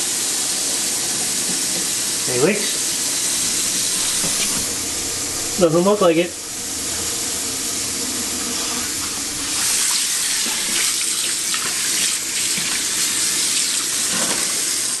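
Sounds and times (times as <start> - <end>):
faucet water splashing into sink: 9.0 - 15.0.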